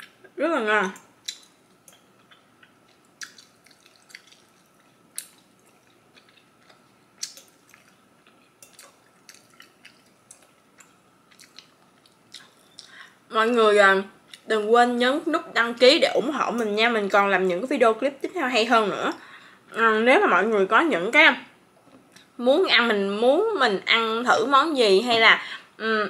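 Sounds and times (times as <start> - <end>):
person chewing with mouth clicks: 1.2 - 13.0.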